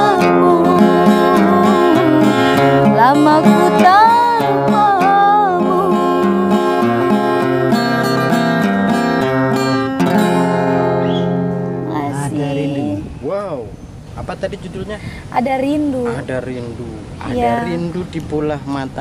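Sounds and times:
woman singing: 0:00.0 - 0:08.4, 0:11.9 - 0:13.0
strummed acoustic guitar: 0:00.0 - 0:13.0.

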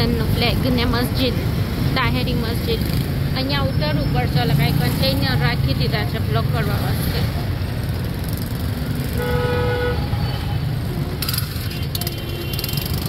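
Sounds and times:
low rumble of traffic engines: 0:00.0 - 0:13.0
vehicle horn honking: 0:09.2 - 0:10.6.

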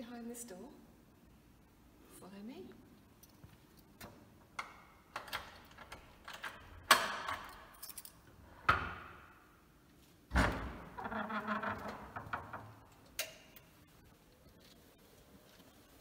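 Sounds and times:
wooden door creaking: 0:10.3 - 0:13.1.

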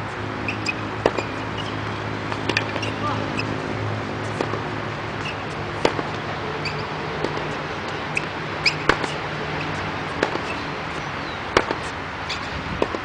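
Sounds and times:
shoe squeaks on court: 0:00.5 - 0:01.8, 0:02.6 - 0:03.6, 0:05.2 - 0:05.5, 0:06.6 - 0:07.0, 0:08.2 - 0:09.8, 0:12.3 - 0:12.5
tennis ball hits: 0:00.5 - 0:13.0.

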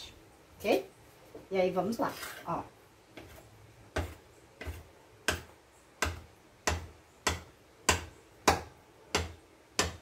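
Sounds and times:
knife chopping dough: 0:03.1 - 0:10.0.

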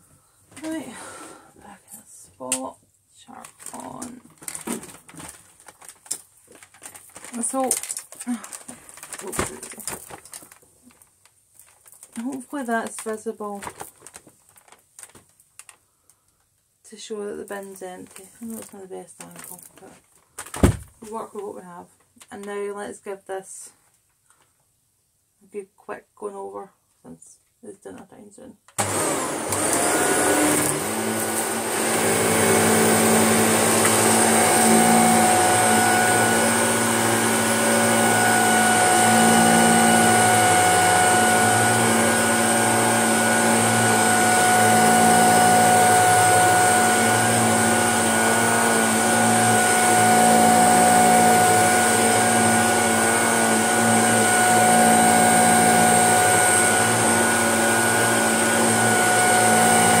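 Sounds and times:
vacuum cleaner on carpet: 0:28.8 - 1:00.0.

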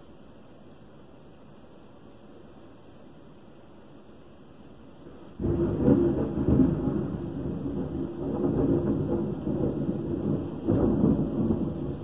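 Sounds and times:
rain: 0:00.0 - 0:12.0
thunder rumbling: 0:05.4 - 0:12.0.

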